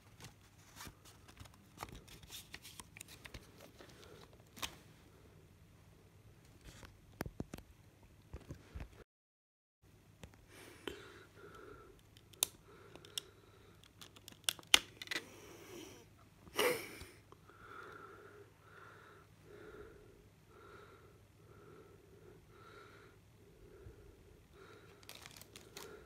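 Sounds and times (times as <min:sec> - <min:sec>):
plastic case clicks and snaps: 0:13.9 - 0:15.2
plastic crackling: 0:24.9 - 0:26.0.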